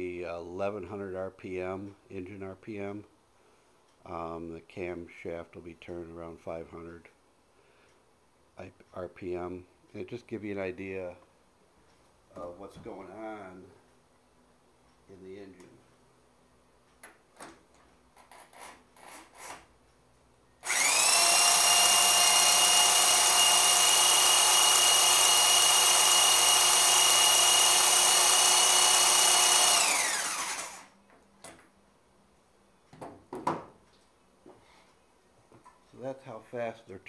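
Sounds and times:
engine spun by drill whining: 20.6 - 30.9.

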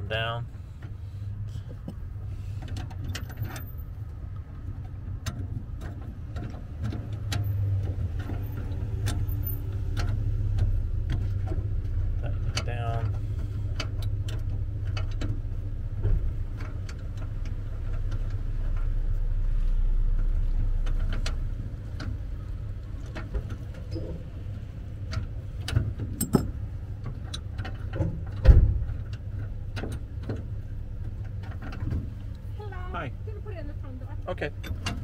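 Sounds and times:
vehicle engine humming: 0.0 - 35.0
wrenches clicking and clinking: 25.1 - 28.1
sharp metal clank: 26.2 - 26.6.

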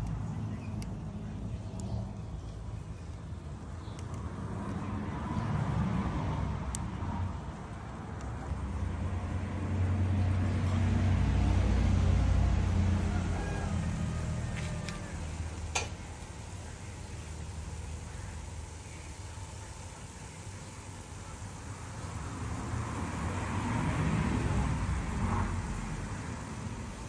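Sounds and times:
light ticks: 0.0 - 1.0, 1.6 - 2.0, 3.8 - 4.9, 6.6 - 6.9, 8.1 - 8.5
passing vehicle engine rumble: 0.0 - 27.0
faint hiss: 11.8 - 27.0
sharp click: 15.7 - 16.0.

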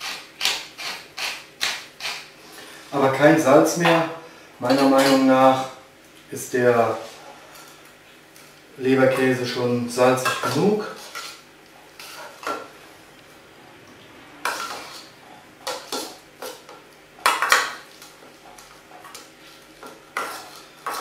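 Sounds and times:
spoon scraping metal bowl: 10.2 - 11.4, 12.0 - 12.5, 14.4 - 16.5, 19.4 - 21.0.

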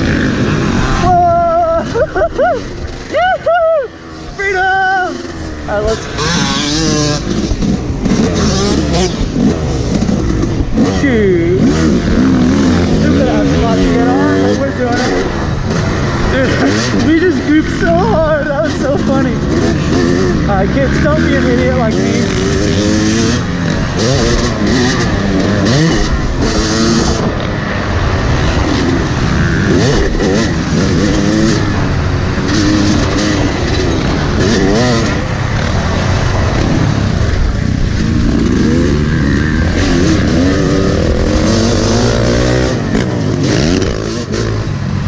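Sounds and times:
dirt bike engine revving: 0.0 - 45.0.

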